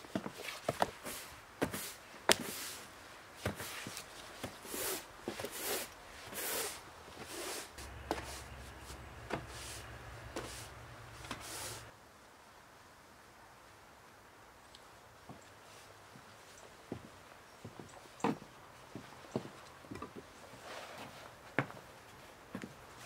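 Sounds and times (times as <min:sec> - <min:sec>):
boot footsteps on wooden boards: 0:07.2 - 0:11.8.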